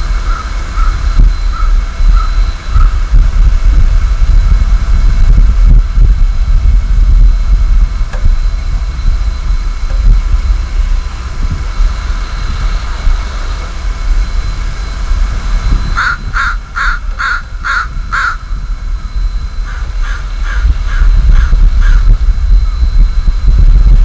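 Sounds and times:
steady low rumble: 0.0s - 24.0s
crow cawing: 16.0s - 18.5s, 19.7s - 22.0s.

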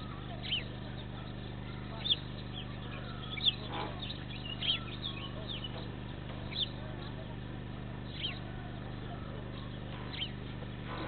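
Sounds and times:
bird chirping: 0.0s - 7.4s, 8.0s - 11.0s
steady low hum: 0.0s - 11.0s.

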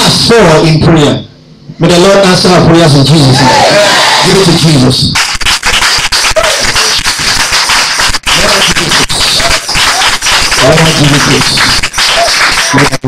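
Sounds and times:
congregation clapping fast: 5.1s - 13.0s.

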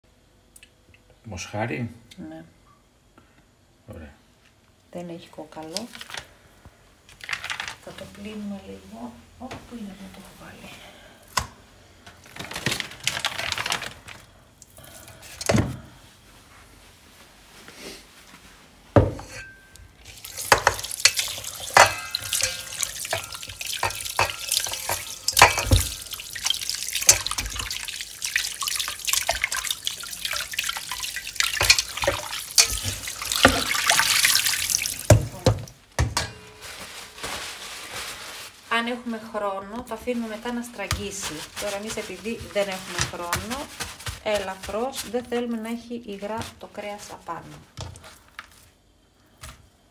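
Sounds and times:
meat knocking while handled: 40.8s - 45.3s.

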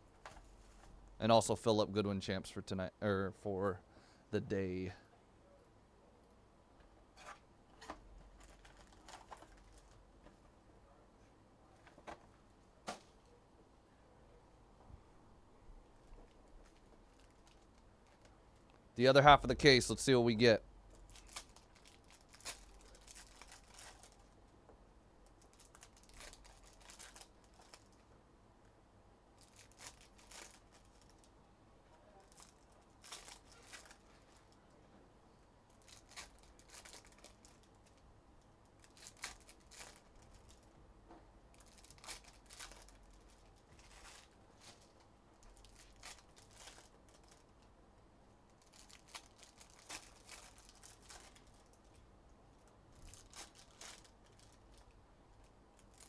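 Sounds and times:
plastic wrapping tearing: 21.1s - 24.3s, 25.4s - 27.9s, 29.4s - 31.3s, 32.2s - 34.5s, 35.8s - 38.0s, 38.8s - 40.6s, 41.5s - 47.4s, 48.6s - 51.8s, 53.0s - 54.8s, 55.8s - 56.0s.

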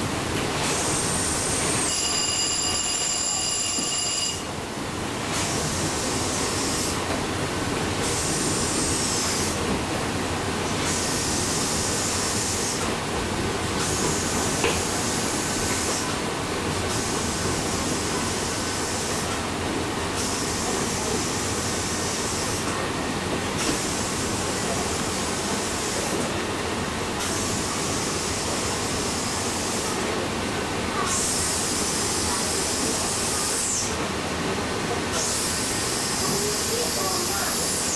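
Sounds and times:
steam hissing: 0.6s - 2.0s, 5.3s - 7.0s, 8.0s - 9.6s, 10.8s - 12.9s, 13.8s - 16.2s, 16.8s - 19.4s, 20.1s - 22.8s, 31.0s - 34.0s, 35.1s - 37.9s.

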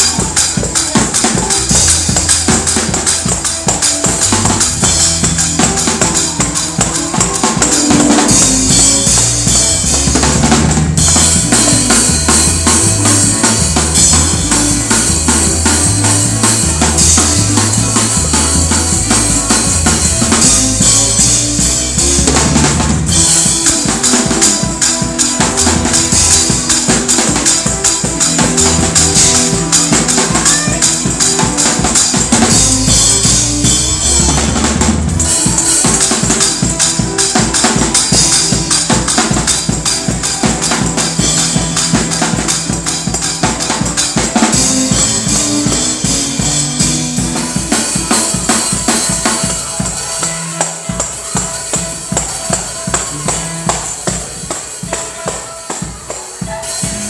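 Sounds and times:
bass line: 0.0s - 24.6s, 25.3s - 36.4s
drum kit played fast: 0.0s - 57.0s.

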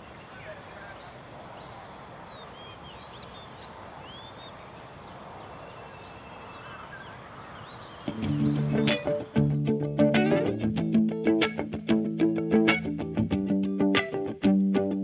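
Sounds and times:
outdoor hiss: 0.0s - 9.5s
birds chirping: 0.0s - 9.6s
guitar music: 8.1s - 15.0s.

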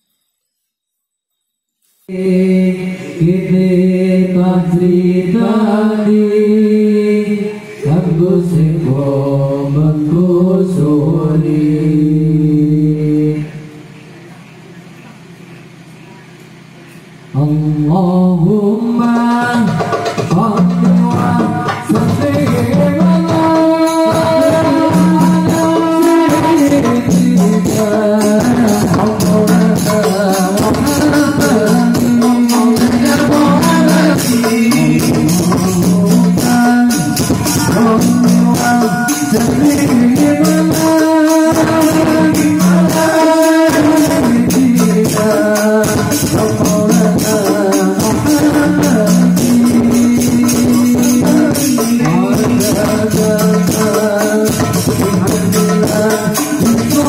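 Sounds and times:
man singing into microphone: 2.1s - 13.8s, 17.3s - 57.0s
frame drums beating rhythm: 18.9s - 57.0s.

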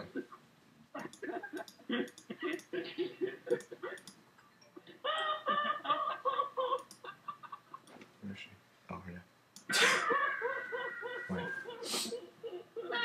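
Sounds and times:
high-pitched voice-like sounds: 10.0s - 12.3s.

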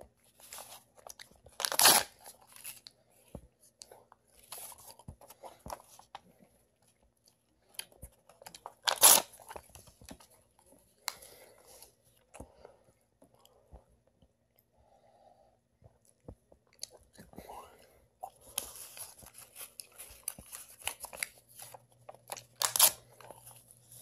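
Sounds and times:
paper tearing: 1.6s - 2.3s, 8.8s - 9.4s, 22.6s - 23.1s.

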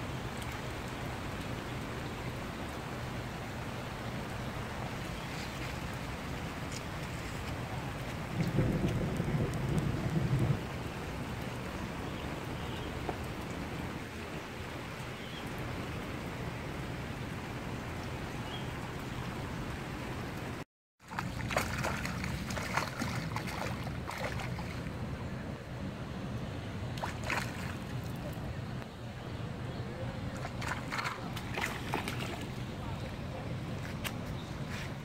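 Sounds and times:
rain on water: 0.0s - 35.0s
fish thrashing and splashing: 21.0s - 24.8s, 30.4s - 32.6s.

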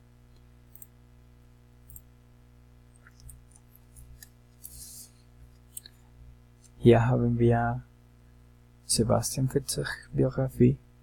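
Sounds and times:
low steady hum: 0.0s - 11.0s
computer mouse clicks: 0.3s - 0.9s.

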